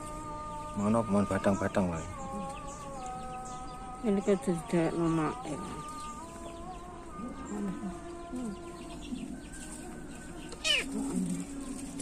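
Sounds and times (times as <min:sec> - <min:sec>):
kitten meowing: 0:10.6 - 0:11.0.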